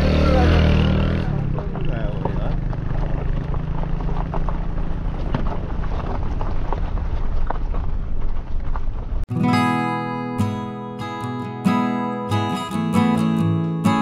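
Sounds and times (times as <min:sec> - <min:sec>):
car driving on gravel: 0:00.0 - 0:09.3
strummed acoustic guitar music: 0:09.3 - 0:14.0.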